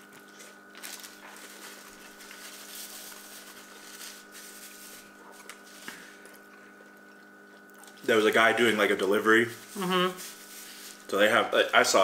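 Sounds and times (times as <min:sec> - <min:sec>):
low electrical hum: 0:00.0 - 0:12.0
chewing with soft crunches: 0:05.1 - 0:08.0.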